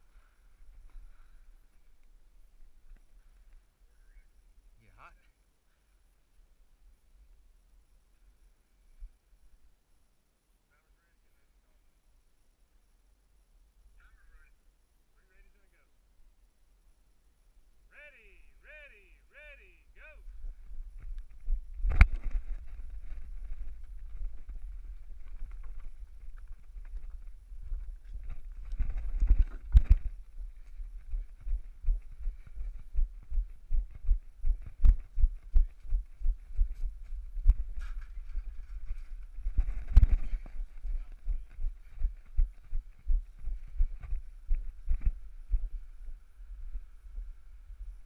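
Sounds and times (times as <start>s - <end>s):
wind rumble on microphone: 20.2s - 48.0s
footsteps on leafy dirt trail: 20.7s - 45.7s.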